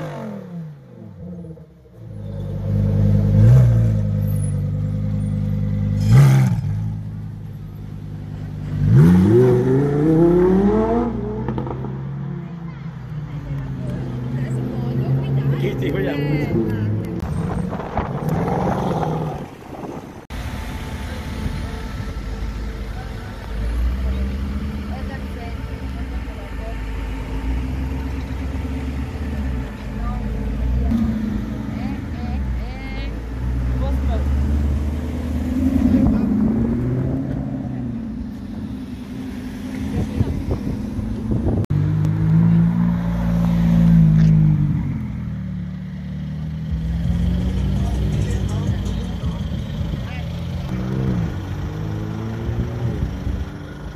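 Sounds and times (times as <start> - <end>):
car engine pulling away: 0.0 - 53.9
car engine idling: 44.1 - 53.9.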